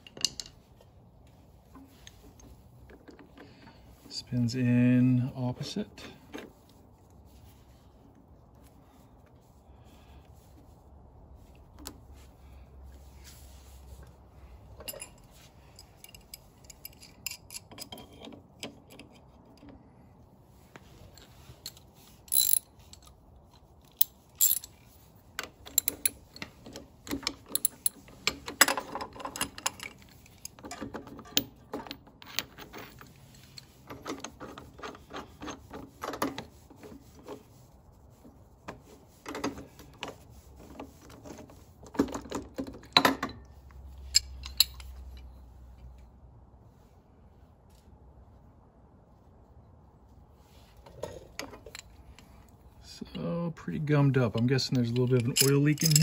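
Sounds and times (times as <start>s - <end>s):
metal tools clinking: 14.7s - 19.6s, 21.0s - 24.9s, 25.5s - 35.6s, 42.1s - 45.5s, 54.0s - 56.0s.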